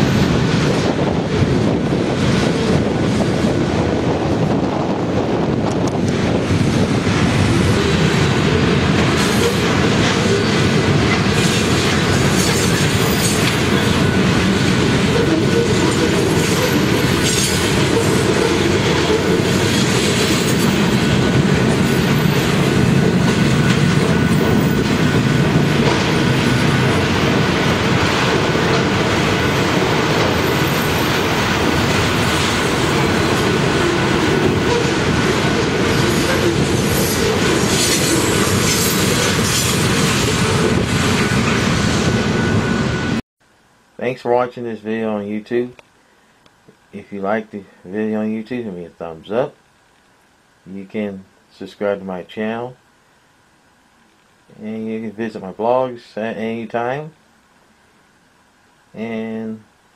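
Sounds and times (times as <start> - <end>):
train wheels clattering on rails: 5.6 - 42.2.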